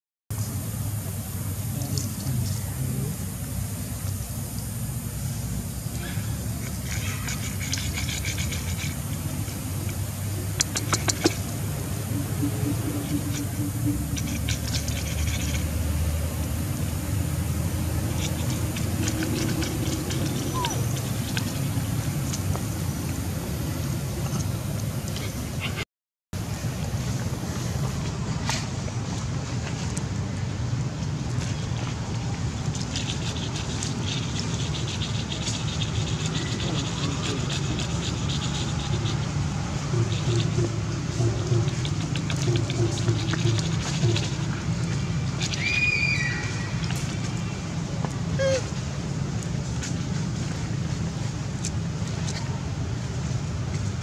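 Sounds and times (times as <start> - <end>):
low background rumble: 0.3 - 25.8
rustling of dry leaf litter: 41.6 - 54.0.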